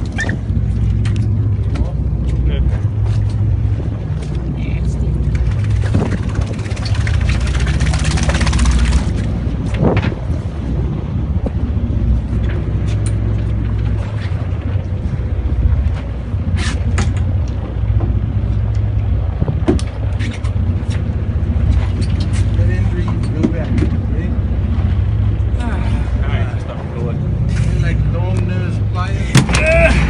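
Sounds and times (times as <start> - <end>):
boat engine rumble: 0.0 - 30.0
wind on microphone: 0.0 - 30.0
water splashing: 3.6 - 9.7.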